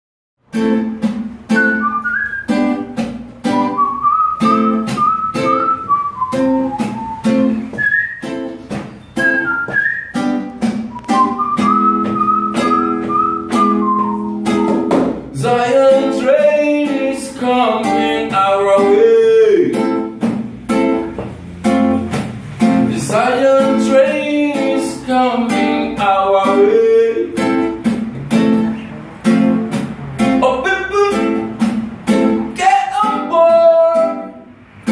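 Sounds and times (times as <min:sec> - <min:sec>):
nylon-string guitar strumming: 0:00.4 - 0:34.9
whistled melody: 0:01.5 - 0:15.0
man singing: 0:15.3 - 0:19.8, 0:22.8 - 0:27.5, 0:30.4 - 0:31.5, 0:32.5 - 0:34.4.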